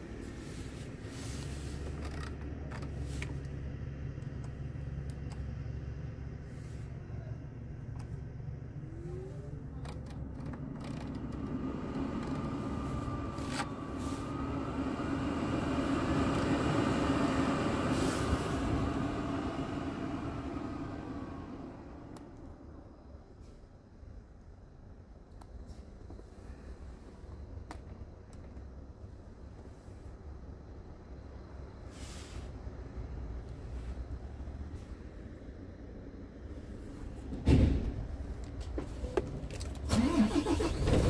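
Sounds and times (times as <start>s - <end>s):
diesel engine idling: 0.0s - 23.2s, 31.2s - 41.0s
ventilation blower whine: 11.1s - 23.0s
rush of air from blower: 12.4s - 22.2s.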